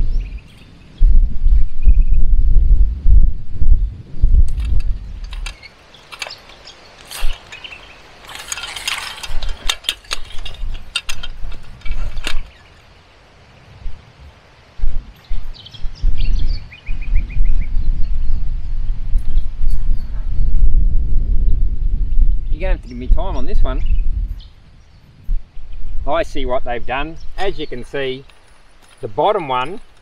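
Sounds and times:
low rumble: 0:00.0 - 0:05.6, 0:13.8 - 0:26.2
metal spring clinking and rattling: 0:04.5 - 0:12.6, 0:27.4 - 0:30.0.

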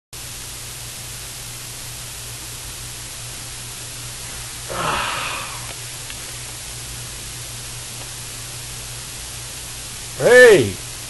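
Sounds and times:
steady hiss with low hum: 0:00.2 - 0:11.0
man yawning loudly: 0:04.7 - 0:05.7.

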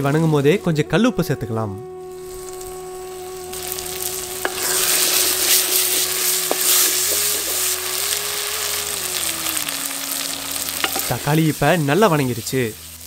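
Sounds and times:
vegetables sizzling in oil: 0:00.0 - 0:13.0
wooden spoon stirring: 0:04.0 - 0:08.2, 0:10.8 - 0:11.3.

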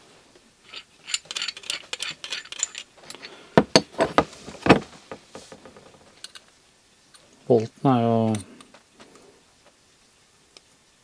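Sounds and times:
metal tools clinking: 0:00.6 - 0:04.1
metal tools knocking together: 0:00.7 - 0:04.1.

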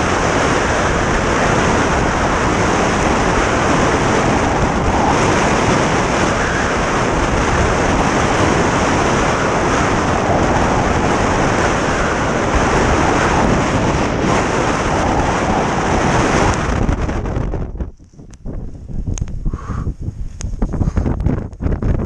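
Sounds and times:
strong wind on microphone: 0:00.0 - 0:22.0.

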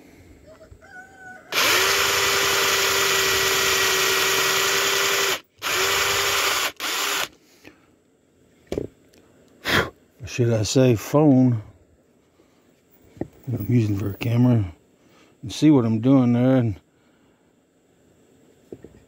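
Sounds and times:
power drill boring wood: 0:01.5 - 0:07.3.

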